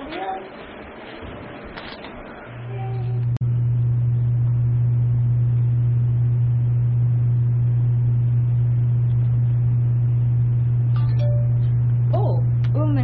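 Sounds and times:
loud steady low hum: 1.6 - 13.0.

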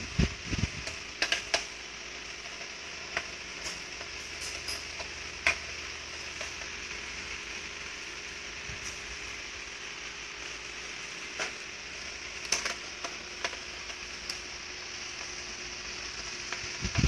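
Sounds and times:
steady hiss: 0.0 - 17.0
screwdriver and metal parts clicking: 0.8 - 1.7, 2.4 - 5.7, 12.4 - 14.5.

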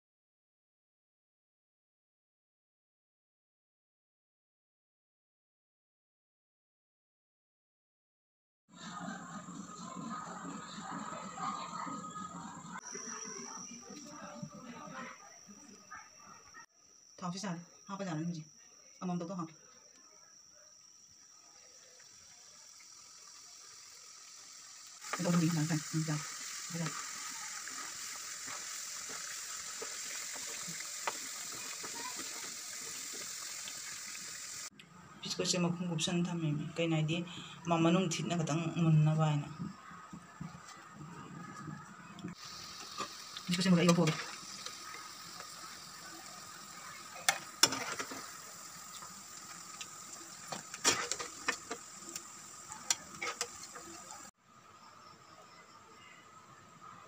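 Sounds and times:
dough sizzling in hot oil: 20.9 - 34.7, 42.3 - 54.4
metal skimmer scraping pan: 47.2 - 49.7, 50.3 - 54.1.

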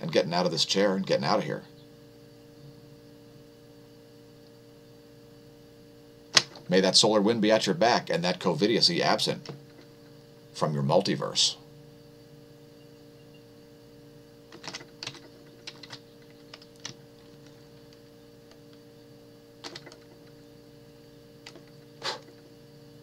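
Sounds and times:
steady low hum: 0.0 - 23.0
computer keyboard keys tapping: 14.6 - 17.6, 19.6 - 20.0.

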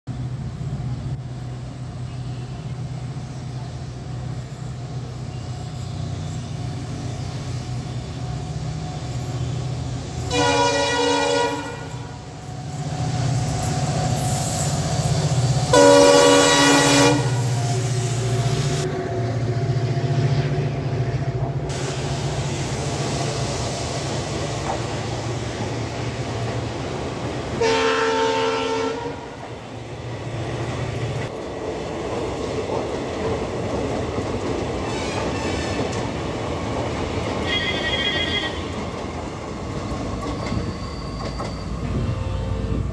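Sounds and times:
locomotive horn: 10.3 - 12.2, 15.7 - 17.5, 27.6 - 29.4, 37.4 - 38.8, 41.8 - 42.9
train wheels clacking on rails: 21.2 - 27.6, 30.5 - 42.9.

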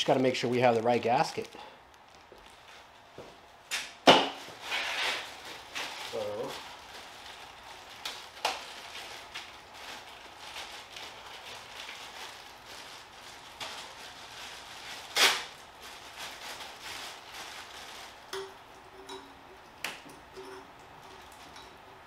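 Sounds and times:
plastic packaging crinkling: 0.0 - 3.2, 4.3 - 18.7.

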